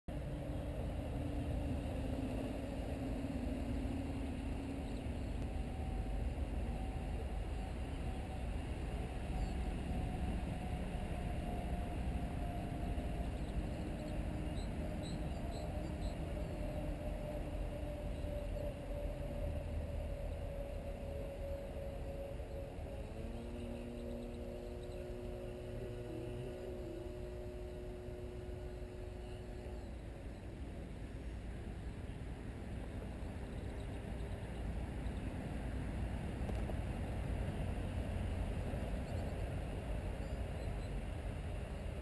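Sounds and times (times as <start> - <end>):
airboat motor and propeller rumbling: 0.1 - 42.0.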